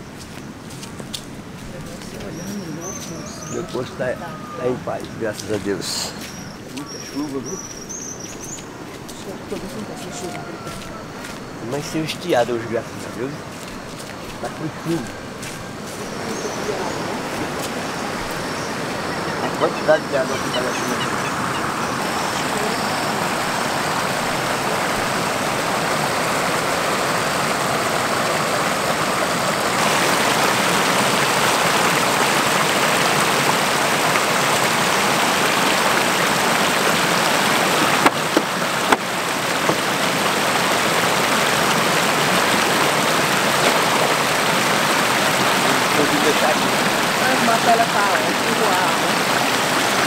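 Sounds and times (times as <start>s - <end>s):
floodwater rushing over spillway: 0.0s - 50.0s
sharp knocks: 37.8s - 39.9s.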